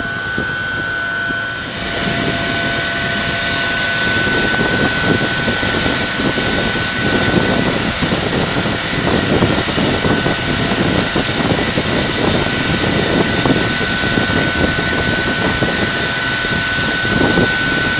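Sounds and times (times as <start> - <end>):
high-pitched whine: 0.0 - 17.9
steam and machinery rushing: 0.0 - 17.9.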